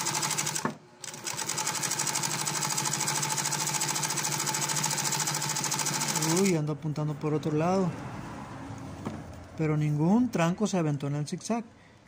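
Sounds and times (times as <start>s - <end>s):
sewing machine running fast: 0.0s - 6.5s.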